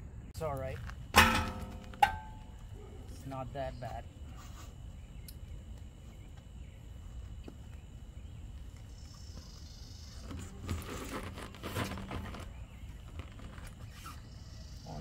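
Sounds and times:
outdoor background noise: 0.0s - 15.0s
wheel knocking and scraping on hub: 1.2s - 2.6s.

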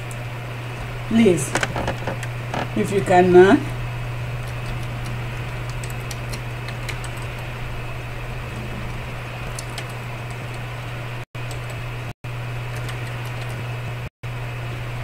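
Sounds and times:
low electrical hum: 0.0s - 15.0s
keyboard keys clicking: 4.4s - 7.5s, 9.5s - 10.6s, 11.5s - 11.8s, 12.7s - 13.7s.

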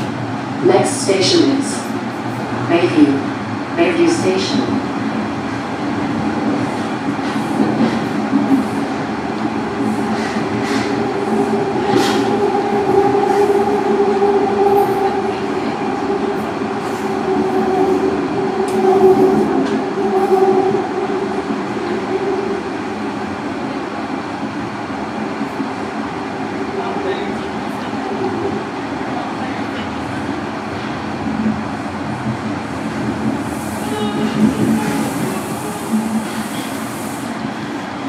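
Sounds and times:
subway train rumble and hum: 0.0s - 38.0s.

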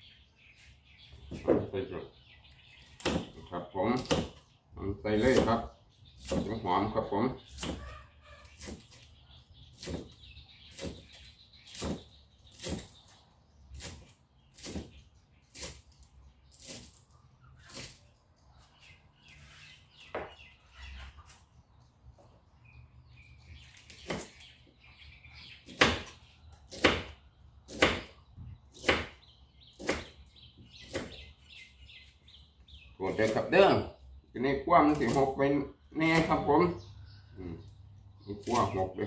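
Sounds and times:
knife chopping on wooden block: 3.0s - 3.4s, 4.0s - 4.4s, 6.2s - 6.6s, 7.6s - 7.9s, 9.8s - 11.1s, 11.7s - 12.9s, 25.6s - 28.1s, 28.8s - 29.2s, 29.8s - 30.2s, 30.8s - 31.2s.

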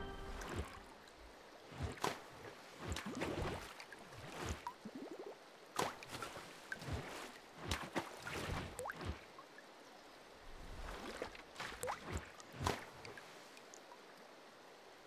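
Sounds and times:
water drips and splashes: 0.1s - 14.6s.

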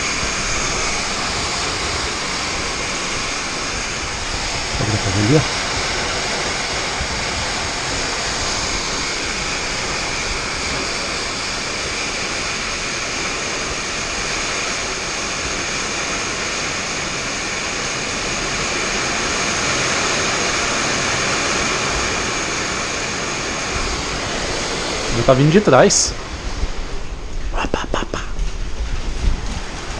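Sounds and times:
hail and heavy rain hissing: 0.0s - 26.5s.

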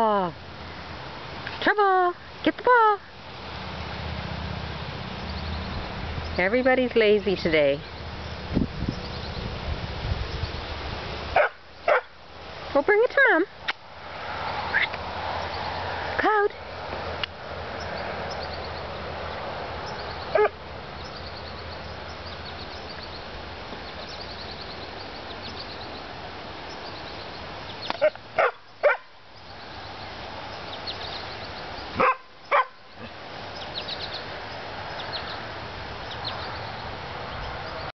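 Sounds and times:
dog barking: 11.4s - 12.1s, 20.3s - 20.6s, 28.0s - 29.1s, 32.0s - 32.8s.

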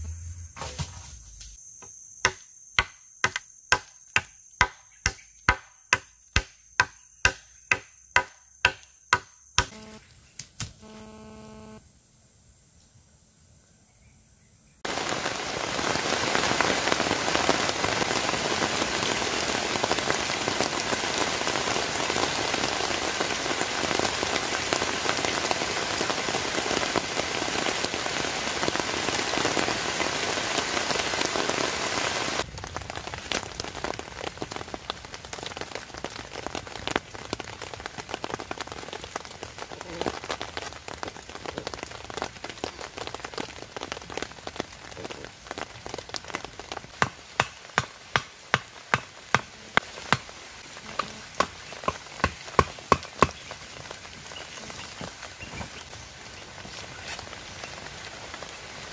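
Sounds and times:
heavy rain on a tarp: 14.8s - 58.9s
raindrops ticking: 32.5s - 56.0s.

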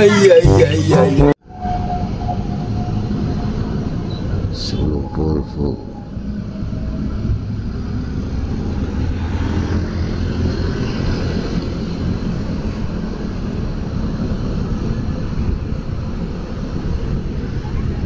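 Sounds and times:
wind noise: 5.8s - 18.0s.

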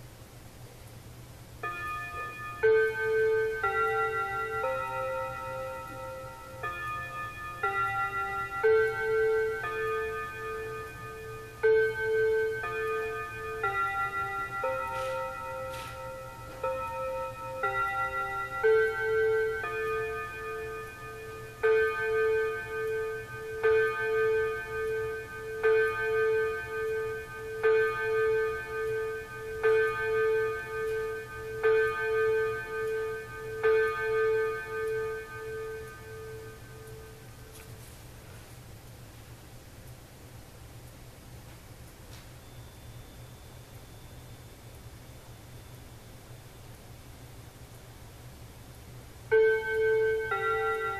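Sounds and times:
clock striking the hour: 1.6s - 37.9s, 49.3s - 50.9s
wall clock chime tune: 1.6s - 38.4s, 42.1s - 47.3s, 49.3s - 50.9s.

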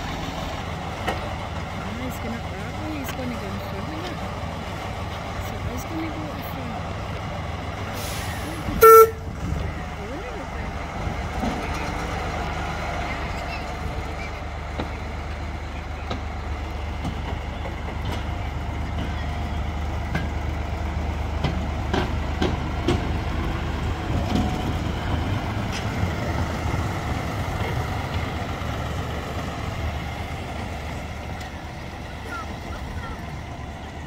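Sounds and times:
miniature locomotive drone: 0.0s - 34.0s
wheels clicking over rail joints: 8.6s - 34.0s.

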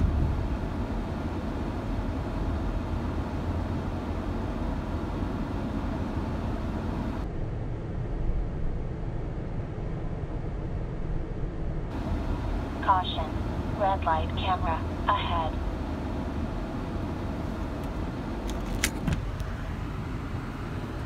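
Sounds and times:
car cabin road rumble: 0.0s - 7.3s, 11.9s - 21.0s.

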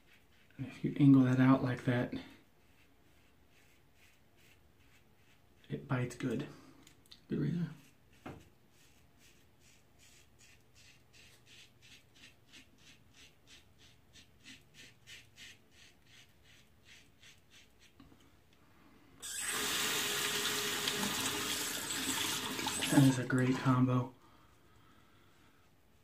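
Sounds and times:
water running into sink: 19.2s - 23.6s.

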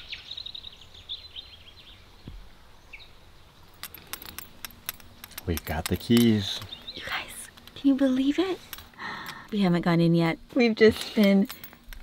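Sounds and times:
bird chirping: 0.0s - 3.8s, 5.4s - 8.3s
faint outdoor background noise: 0.0s - 12.0s
keys jingling: 3.7s - 6.8s, 11.2s - 12.0s.

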